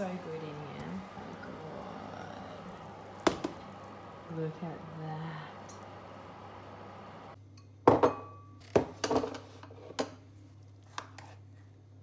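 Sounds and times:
kitchenware clattering on table: 7.8 - 10.2.

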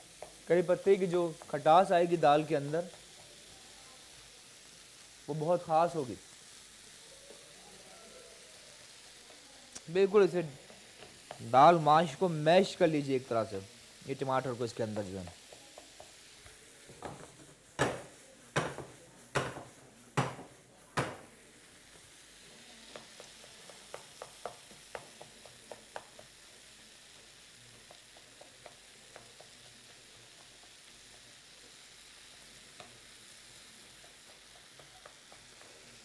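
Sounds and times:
food sizzling in a pan: 0.0 - 36.0
spoon scraping and tapping pan: 0.1 - 0.5, 10.6 - 11.6, 15.4 - 16.3, 16.9 - 21.3, 22.9 - 26.6, 27.7 - 31.5, 33.8 - 36.0
spoon knocking against pan: 17.0 - 21.3, 22.9 - 26.4.

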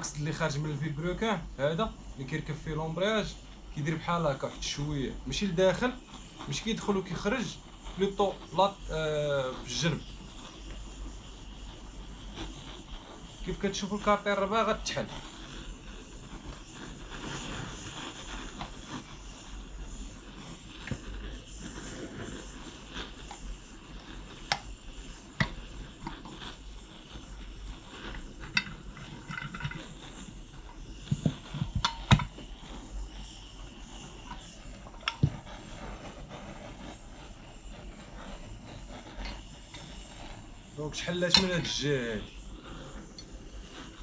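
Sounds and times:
hand tools clicking and knocking on metal: 28.4 - 30.0.

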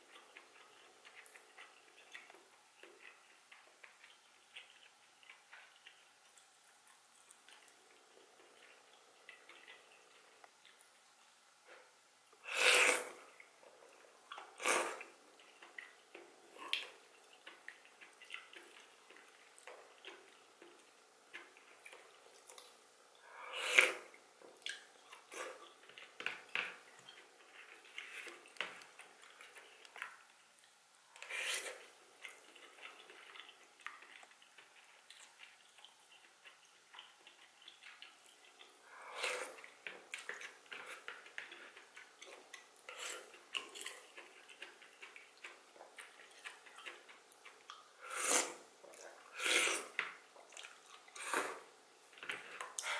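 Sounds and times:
soft chewing: 0.0 - 52.9
loud wet slurps: 12.5 - 13.2, 48.0 - 48.6, 49.3 - 50.0.

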